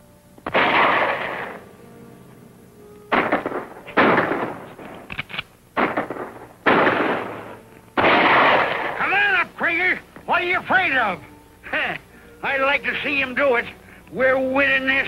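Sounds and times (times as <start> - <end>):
gunshots with echoing tail: 0.5 - 1.6, 3.1 - 4.8, 5.8 - 9.0.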